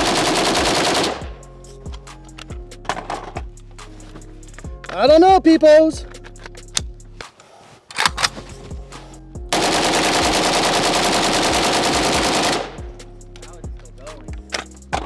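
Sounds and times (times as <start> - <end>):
rifle firing full-auto: 0.0 - 1.4, 9.6 - 12.8.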